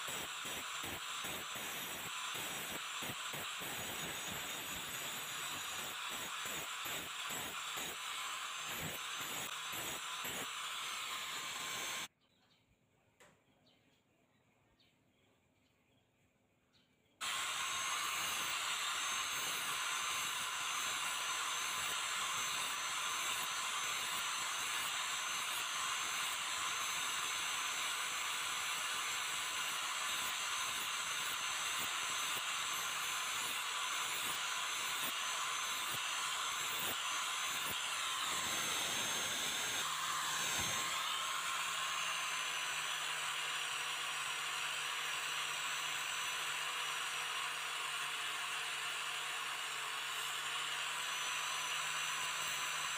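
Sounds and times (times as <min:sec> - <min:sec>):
angle grinder grinding metal: 0:00.0 - 0:12.1, 0:17.2 - 0:52.9.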